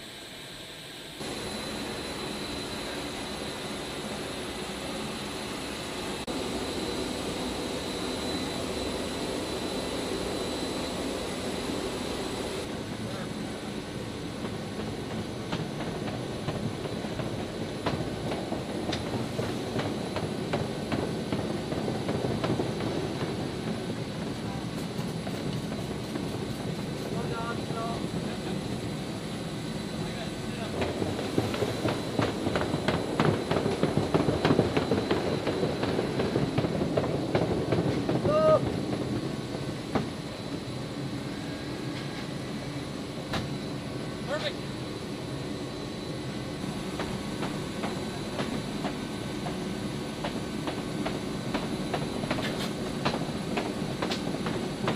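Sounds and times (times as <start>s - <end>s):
faint high whine: 0.0s - 14.5s
steady background hum: 0.1s - 54.9s.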